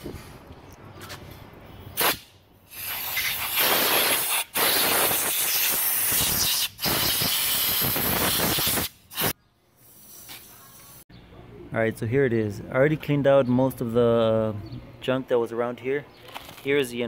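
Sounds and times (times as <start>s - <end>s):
compressed air blow gun hissing: 2.0s - 11.0s.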